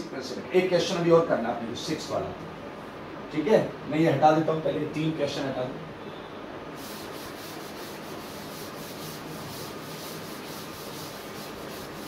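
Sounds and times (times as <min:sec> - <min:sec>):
eraser rubbing on blackboard: 0:06.8 - 0:12.0.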